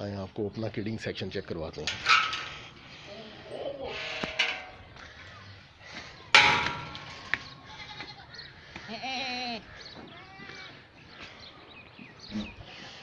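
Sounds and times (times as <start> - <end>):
goats bleating: 7.4 - 10.9.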